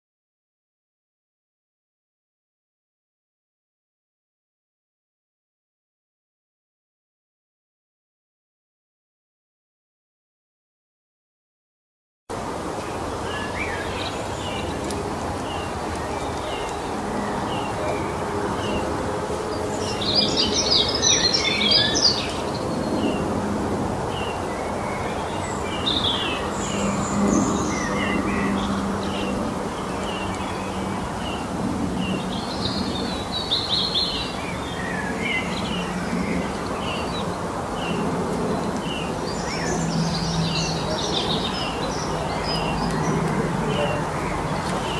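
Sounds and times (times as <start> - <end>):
bird chirping: 19.5 - 23.2
bird warbling song: 19.5 - 23.3.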